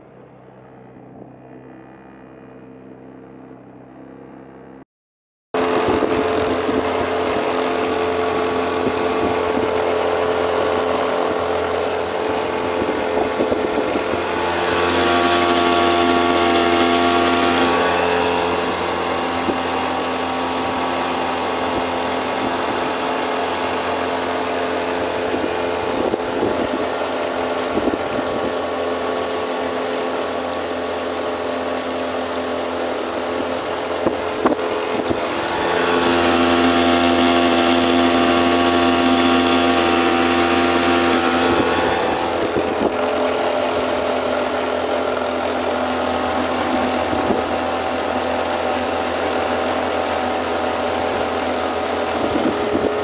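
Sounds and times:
outboard motor running: 0:00.0 - 0:04.8, 0:05.5 - 0:53.0.

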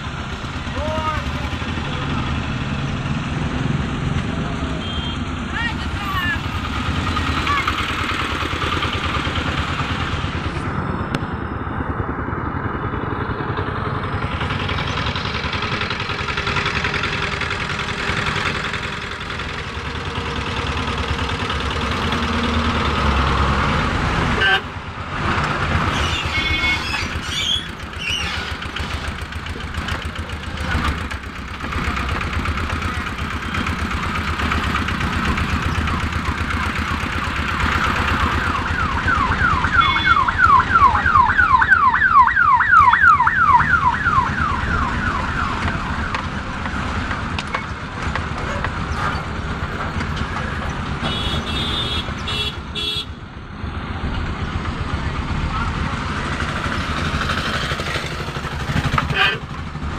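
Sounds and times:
vehicle engine running: 0:00.0 - 0:24.2, 0:24.8 - 0:59.9
road traffic: 0:00.0 - 0:59.9
electronic siren wailing: 0:37.9 - 0:46.6.

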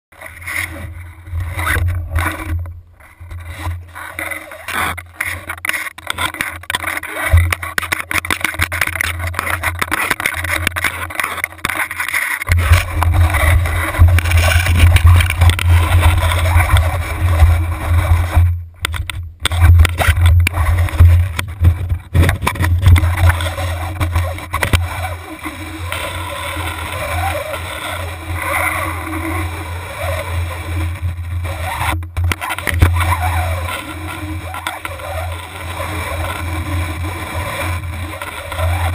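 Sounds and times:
camera housing rubbing and knocking: 0:00.4 - 0:25.0, 0:31.6 - 0:34.0
muffled low rumble: 0:00.7 - 0:04.1, 0:12.5 - 0:27.1.

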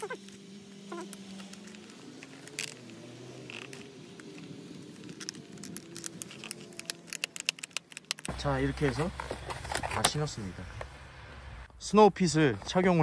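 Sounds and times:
low wavering hum: 0:00.0 - 0:08.4
ratchet buckle clicking: 0:01.0 - 0:08.3.

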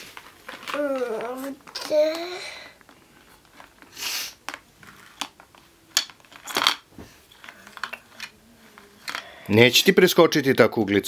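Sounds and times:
plastic toy parts clicking: 0:04.4 - 0:08.4, 0:09.0 - 0:09.3.

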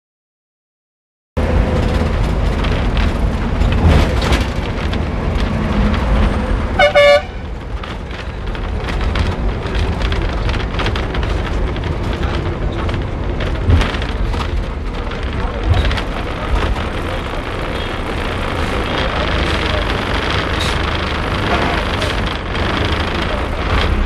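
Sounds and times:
bus engine and road noise: 0:01.4 - 0:24.0
bus horn toot: 0:06.7 - 0:07.5.

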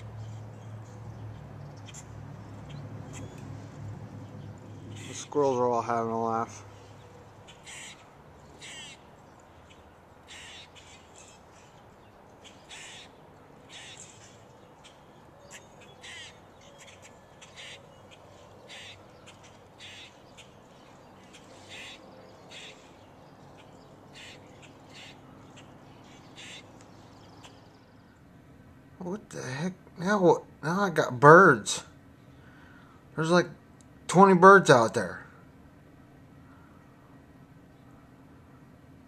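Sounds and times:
raspy animal calls: 0:04.8 - 0:05.4, 0:07.4 - 0:11.8, 0:12.4 - 0:20.6, 0:21.2 - 0:26.8.

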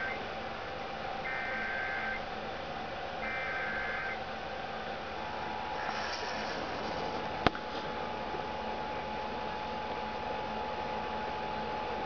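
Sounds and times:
screeching digital data bursts: 0:01.2 - 0:02.2, 0:03.2 - 0:04.2.

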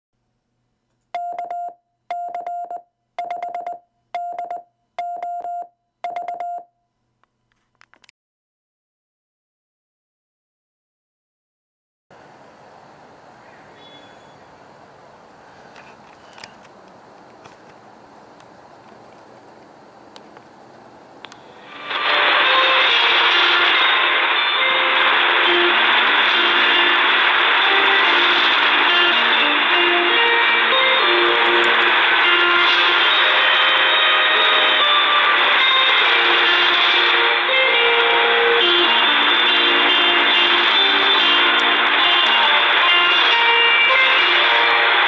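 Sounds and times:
morse code beeps: 0:01.2 - 0:06.8
radio static hiss: 0:21.3 - 0:45.0
music over shortwave radio: 0:21.4 - 0:45.0.

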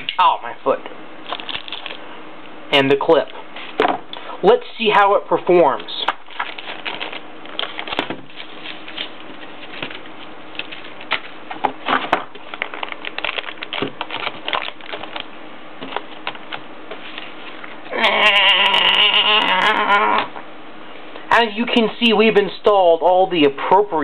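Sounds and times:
plastic bag crinkling: 0:01.2 - 0:02.1, 0:06.0 - 0:17.8.

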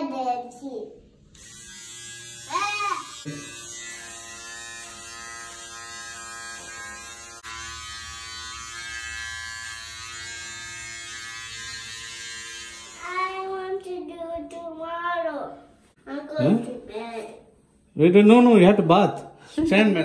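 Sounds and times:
electric hair trimmer buzzing: 0:01.3 - 0:13.2.

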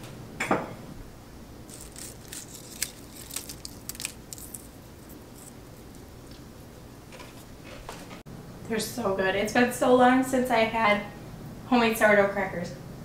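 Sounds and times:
crackers snapping: 0:01.7 - 0:06.5.

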